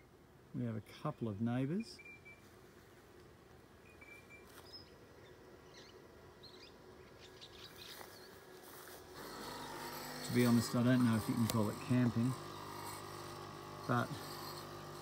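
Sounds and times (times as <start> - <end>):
faint bird chirps: 1.8 - 2.5, 3.8 - 8.4.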